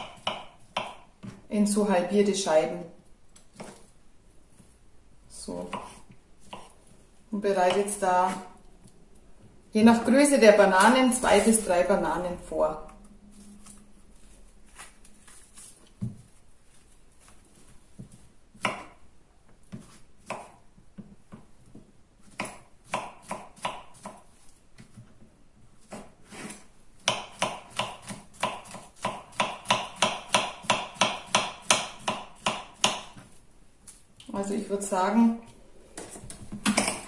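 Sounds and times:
knife chopping on wooden board: 0.0s - 1.4s, 3.4s - 3.9s, 5.6s - 6.8s, 18.0s - 19.0s, 19.6s - 21.5s, 22.2s - 24.2s, 25.8s - 33.4s.

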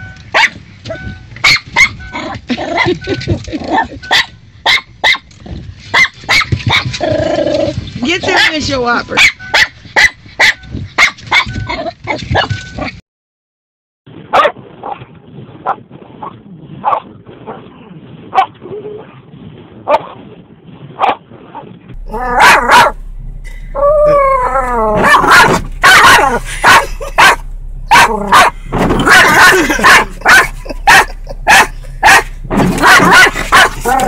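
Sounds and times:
dogs barking and yipping: 0.2s - 13.0s, 14.3s - 15.0s, 22.1s - 23.0s, 23.8s - 34.0s
dog whining: 22.1s - 22.9s, 23.8s - 32.2s.

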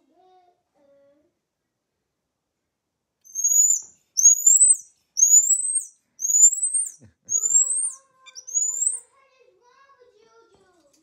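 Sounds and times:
marmoset whistled phee calls: 3.3s - 9.0s.

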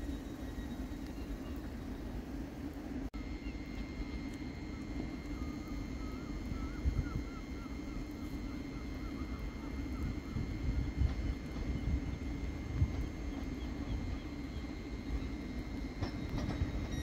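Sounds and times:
distant train rumble: 0.0s - 17.0s
thin steady whine: 0.0s - 17.0s
wavering chirp: 5.2s - 11.0s.

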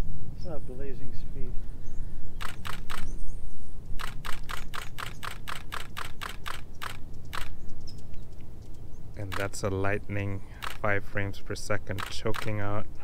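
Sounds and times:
camera shutter bursts: 2.4s - 3.2s, 4.0s - 7.6s, 9.2s - 9.6s, 10.6s - 10.9s, 11.9s - 12.7s.

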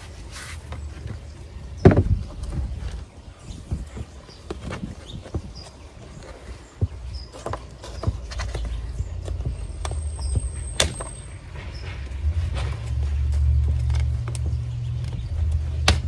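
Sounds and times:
low rumble: 11.5s - 15.8s.

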